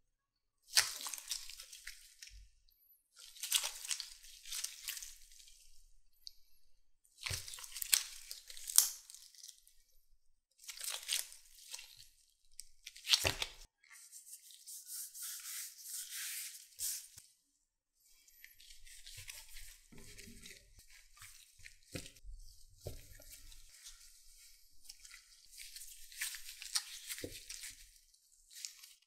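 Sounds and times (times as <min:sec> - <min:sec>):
sticky dough tearing crackly: 0:07.2 - 0:09.6.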